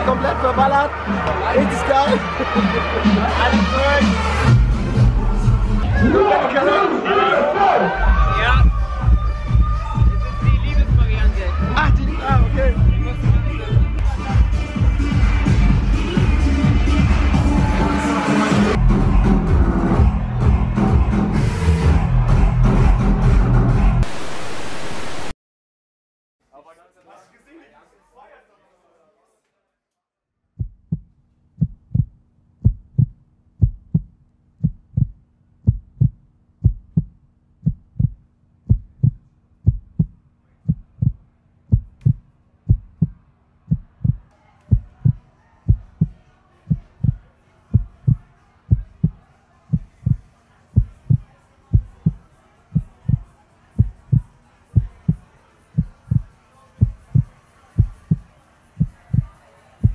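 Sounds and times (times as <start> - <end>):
club crowd noise: 0.0 - 24.2, 42.1 - 59.9
heartbeat double thumps: 30.6 - 50.2, 50.8 - 52.2, 52.8 - 53.2, 53.8 - 55.2, 55.8 - 58.2, 58.8 - 59.9.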